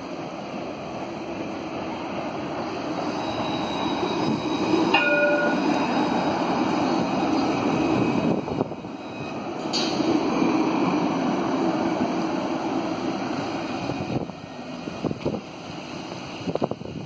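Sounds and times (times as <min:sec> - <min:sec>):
tram passing on rails: 0:00.0 - 0:17.0
short ringing ding: 0:05.0 - 0:05.6.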